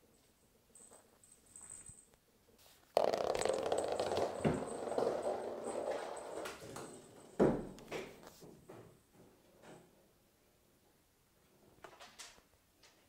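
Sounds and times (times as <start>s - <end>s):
toy ball clattering on floor: 2.9s - 7.9s.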